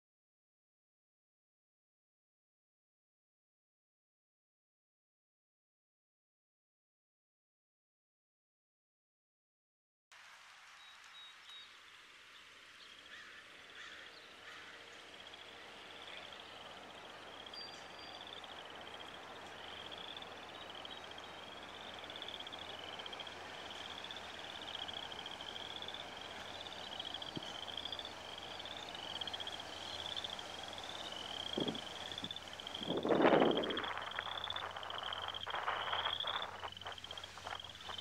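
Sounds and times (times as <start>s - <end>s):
outdoor hiss: 10.1s - 38.0s
faint bird chirps: 10.8s - 38.0s
frogs calling in a chorus: 13.1s - 38.0s.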